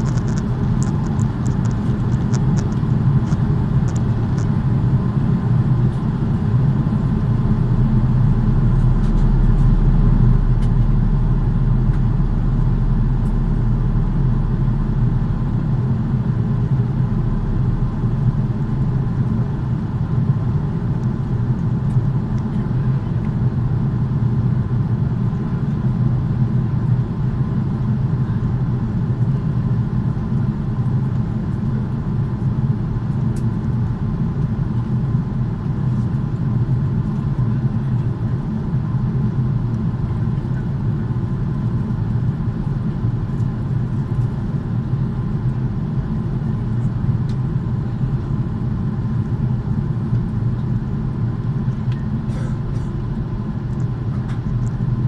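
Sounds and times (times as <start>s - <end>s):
faint steady whine: 0.0s - 55.0s
jet engine rumble and rushing air: 0.0s - 55.0s.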